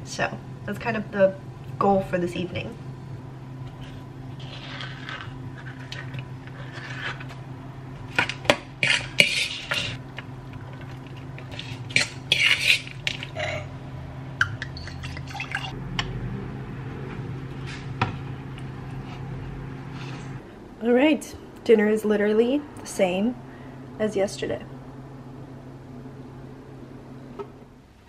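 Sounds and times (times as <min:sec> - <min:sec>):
low steady hum: 0:00.0 - 0:28.0
metal spoon scraping bowl and can: 0:04.4 - 0:07.4, 0:08.8 - 0:10.0, 0:11.3 - 0:13.4.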